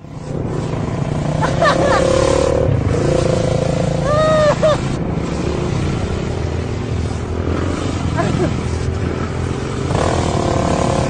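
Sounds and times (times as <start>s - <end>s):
motorcycle engines revving: 0.0s - 11.0s
rising-and-falling call: 4.0s - 4.8s.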